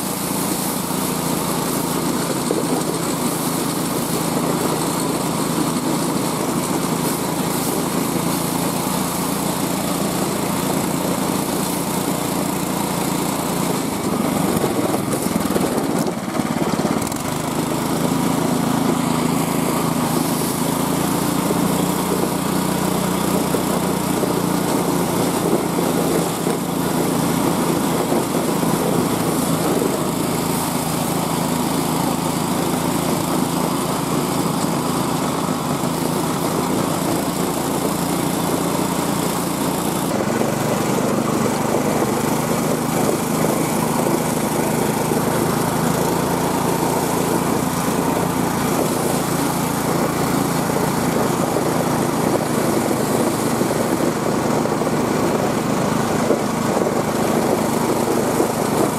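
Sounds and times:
small gas engine running: 0.0s - 58.9s.

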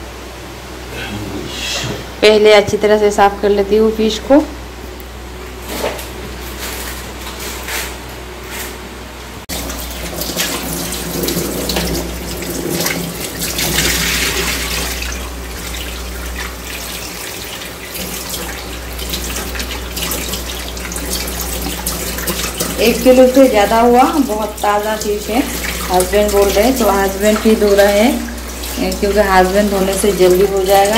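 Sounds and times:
water splashing: 9.5s - 30.9s.

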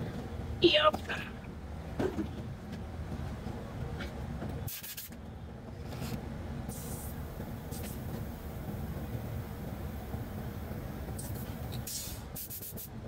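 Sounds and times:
steady low rumble: 0.0s - 13.0s
compressed air hissing: 4.7s - 5.1s, 6.7s - 8.7s, 11.1s - 13.0s.

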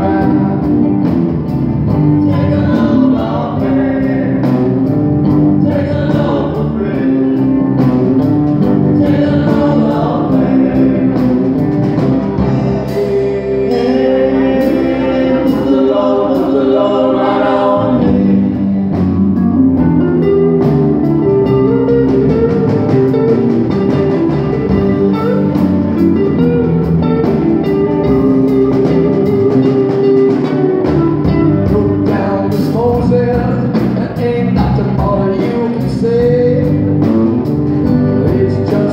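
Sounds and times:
drum kit: 0.0s - 38.9s
electric guitars: 0.0s - 38.9s
voices singing together: 2.2s - 5.0s, 5.6s - 7.6s, 8.7s - 11.7s, 12.4s - 19.0s.

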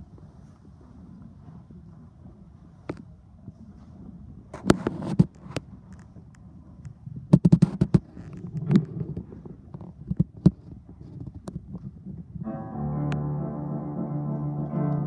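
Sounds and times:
sustained piano chords: 12.4s - 15.0s.

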